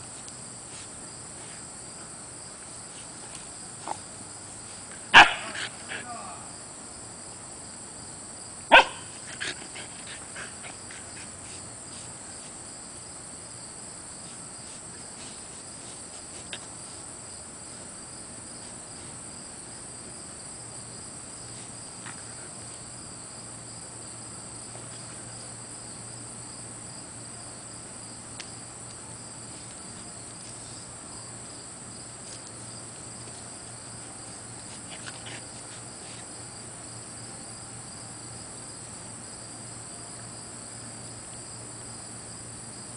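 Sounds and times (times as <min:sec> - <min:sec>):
puppy barking: 0:05.1 - 0:06.0, 0:08.7 - 0:09.2.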